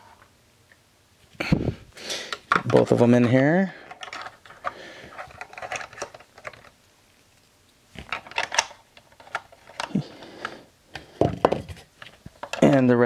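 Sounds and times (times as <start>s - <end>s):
plastic toy parts clicking: 3.9s - 6.7s, 8.0s - 10.0s.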